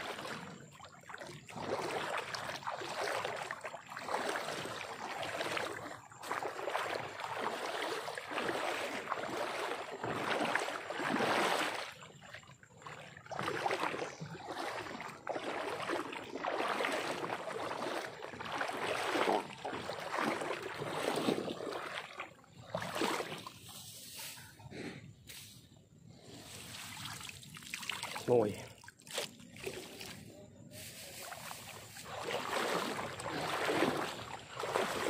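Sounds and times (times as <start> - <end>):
water sloshing: 0.0 - 24.6, 25.7 - 35.0
grass swishing: 23.3 - 24.6, 25.3 - 25.7, 26.3 - 27.3, 30.7 - 33.7.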